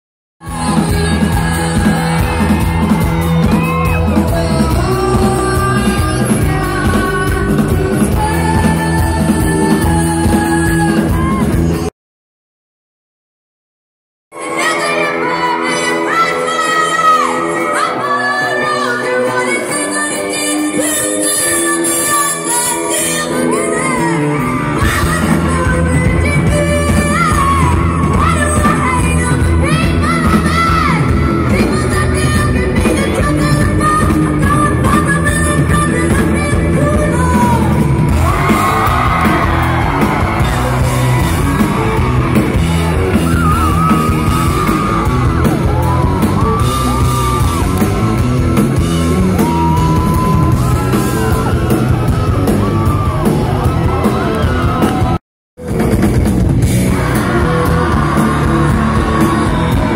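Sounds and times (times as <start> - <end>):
person singing: 0.4 - 11.8
drums and bass: 0.4 - 11.9, 18.5 - 59.9
live rock band playing: 0.4 - 11.9, 14.4 - 59.9
crowd shouting: 0.5 - 4.9, 37.3 - 48.3, 49.1 - 55.2, 56.7 - 59.9
sustained guitar chords: 55.6 - 59.9.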